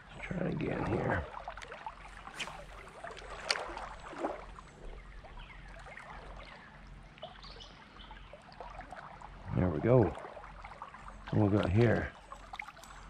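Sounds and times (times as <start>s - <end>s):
creek water trickling: 0.0s - 13.0s
sharp splashes and ticks: 0.3s - 5.0s, 10.0s - 13.0s.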